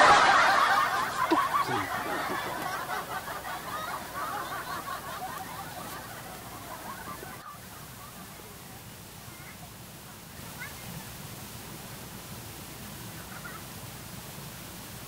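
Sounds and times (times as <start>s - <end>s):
canned audience laughter: 0.0s - 8.2s.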